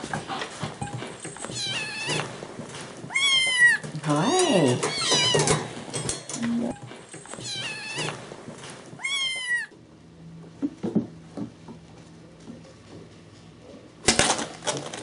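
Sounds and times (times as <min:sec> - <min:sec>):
kittens meowing: 0:03.1 - 0:05.6, 0:09.0 - 0:09.7.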